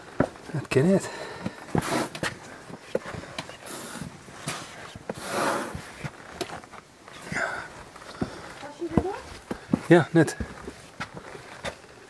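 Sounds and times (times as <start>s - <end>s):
footsteps crunching on rocky trail: 0.0s - 12.0s.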